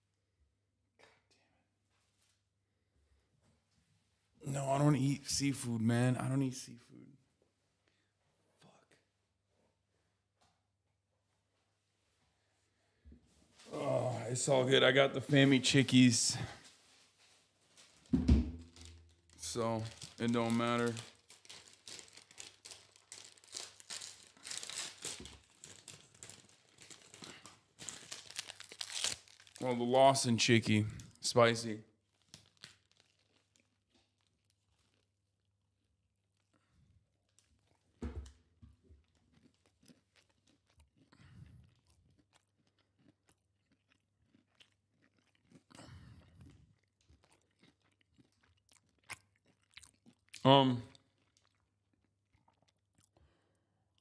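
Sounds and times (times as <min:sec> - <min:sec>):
food wrapper crinkling: 0:17.7 - 0:35.4
chewing crispy fried chicken: 0:18.7 - 0:38.0, 0:38.8 - 0:54.0.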